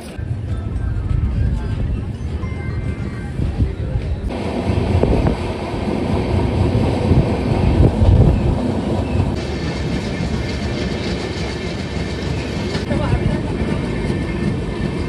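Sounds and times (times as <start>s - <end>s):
train wheels rumbling on rails: 0.0s - 15.0s
passing train rushing hiss: 4.3s - 15.0s.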